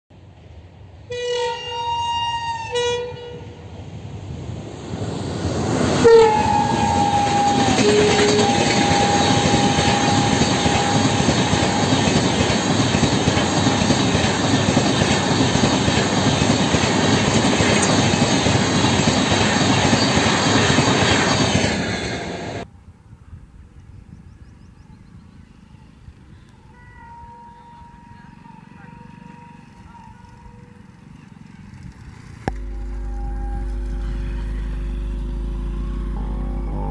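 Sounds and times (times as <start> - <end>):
train horn blasts: 1.1 - 3.6, 6.0 - 12.7, 26.6 - 31.2, 32.5 - 36.9
train wheels rushing on track: 2.8 - 22.7.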